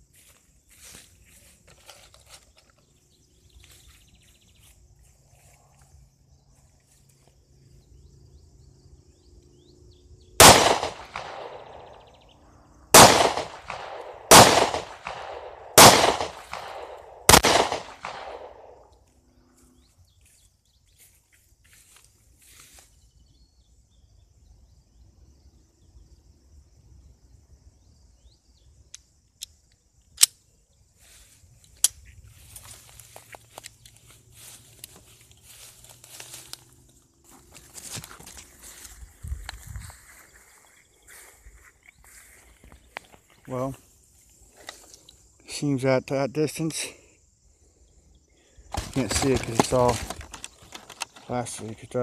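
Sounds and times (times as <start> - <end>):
pistol shots with echo: 10.4 - 12.0, 13.0 - 18.8.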